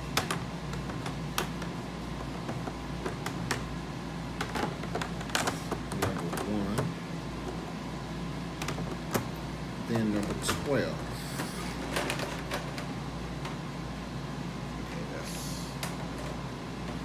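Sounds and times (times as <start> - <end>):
plastic cases clacking: 4.4 - 6.9.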